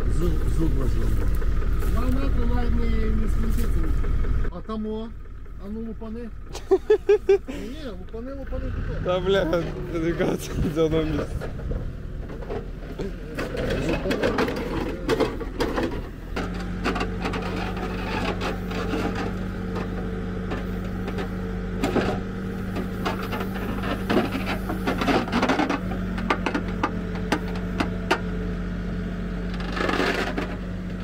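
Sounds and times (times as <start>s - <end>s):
diesel engine running: 0.0s - 31.0s
bucket scraping through soil: 16.8s - 20.0s, 22.7s - 25.8s.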